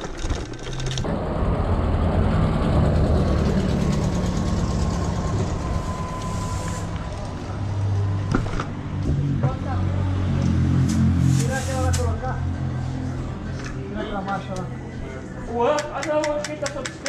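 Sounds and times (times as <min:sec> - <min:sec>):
bike rattling over cobblestones: 0:00.0 - 0:01.2, 0:02.9 - 0:06.1
engine rumble: 0:00.0 - 0:15.5
road and wind noise: 0:00.0 - 0:17.0.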